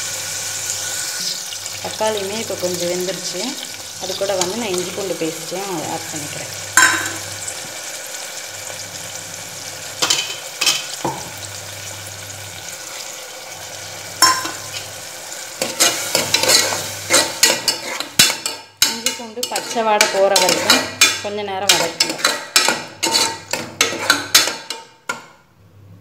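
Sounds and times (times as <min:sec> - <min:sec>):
food sizzling in pot: 0:00.0 - 0:25.3
metal ladle knocking pot: 0:06.8 - 0:07.2, 0:14.2 - 0:14.7, 0:15.7 - 0:25.3
ladle scraping while stirring: 0:15.6 - 0:25.2.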